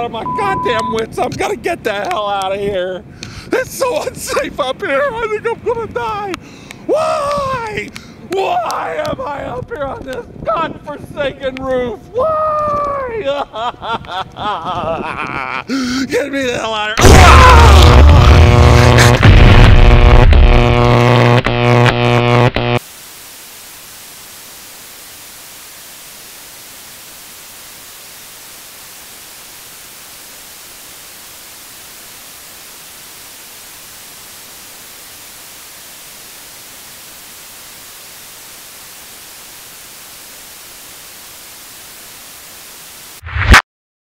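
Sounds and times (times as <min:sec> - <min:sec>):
loud noise burst: 0:17.0 - 0:43.6
static hiss: 0:17.0 - 0:43.6.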